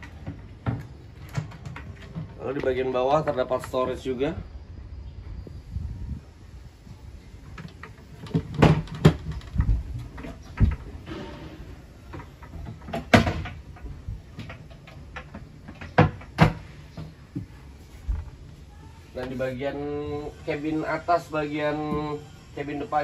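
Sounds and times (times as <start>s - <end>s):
wooden cabinet doors clacking: 12.2s - 17.5s.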